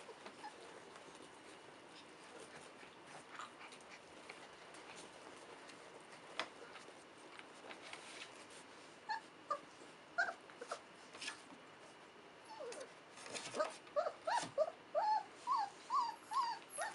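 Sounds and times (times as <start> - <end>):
puppies yipping and whimpering: 10.2 - 10.8, 13.5 - 16.9.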